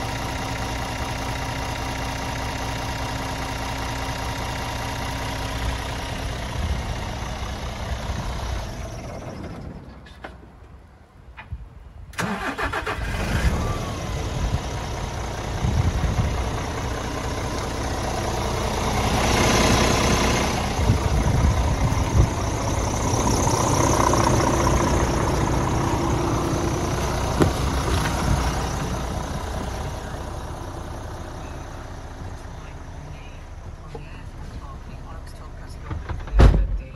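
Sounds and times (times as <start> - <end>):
diesel engine idling: 0.0 - 10.0, 12.2 - 36.9.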